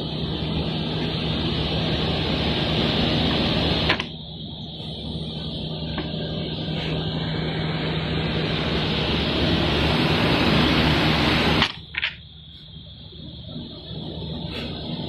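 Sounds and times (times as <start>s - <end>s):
sanding machine rushing noise: 0.0s - 4.0s, 4.8s - 11.7s
low hum: 0.0s - 15.0s.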